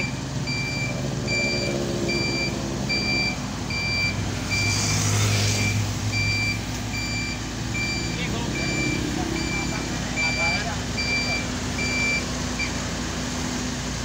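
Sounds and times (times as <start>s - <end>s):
motorcycle passing: 0.0s - 10.2s
reversing alarm beeping: 0.0s - 12.8s
harvester engine running: 0.0s - 14.0s.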